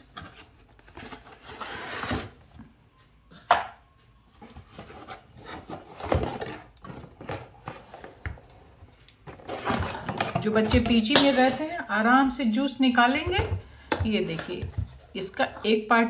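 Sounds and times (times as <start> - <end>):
cardboard rustling and scraping: 0.0 - 2.4, 4.4 - 11.0.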